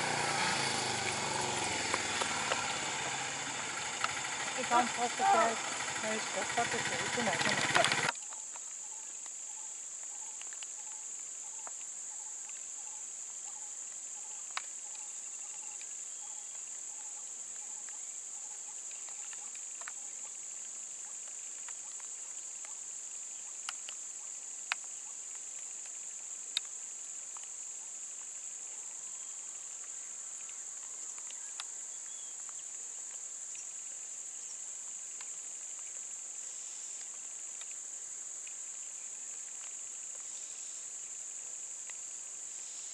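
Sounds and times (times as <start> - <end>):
high-pitched insect drone: 0.0 - 9.0
sharp clicks: 3.8 - 8.4.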